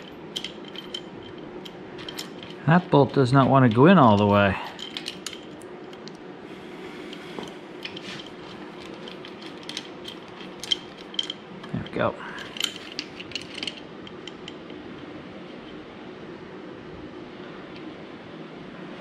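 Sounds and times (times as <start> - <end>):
metallic clicks of bolts and washers: 0.0 - 6.2, 7.8 - 14.8.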